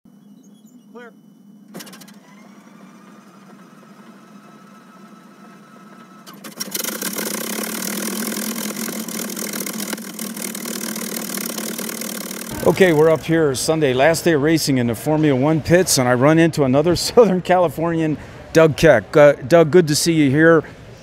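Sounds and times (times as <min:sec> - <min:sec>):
engine starter whine: 0:00.1 - 0:13.9
propeller plane engine running: 0:06.5 - 0:13.4.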